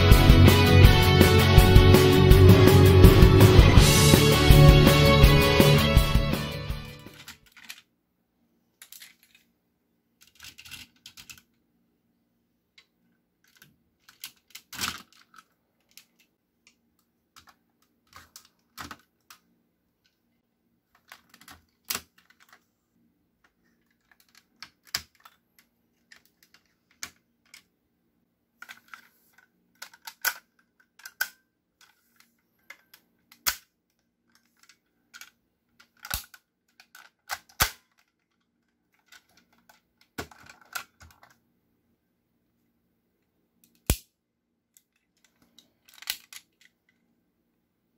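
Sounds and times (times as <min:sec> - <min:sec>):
plastic toy parts clicking: 0:07.1 - 0:07.9, 0:08.8 - 0:09.5, 0:10.2 - 0:11.6, 0:12.8 - 0:20.2, 0:20.9 - 0:22.6, 0:23.4 - 0:27.7, 0:28.6 - 0:41.4, 0:43.6 - 0:44.1, 0:44.8 - 0:47.1.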